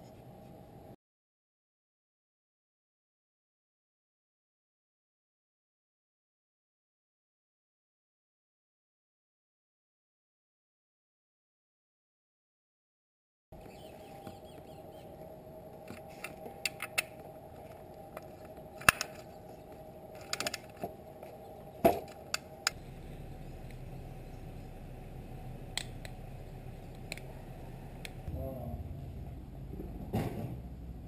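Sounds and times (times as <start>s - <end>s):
steady low hum: 13.6s - 31.0s.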